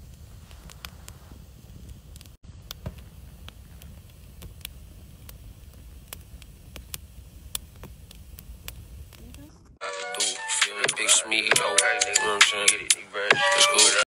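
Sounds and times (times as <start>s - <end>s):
low fire rumble: 0.0s - 9.8s
wood fire crackling and popping: 0.0s - 13.0s.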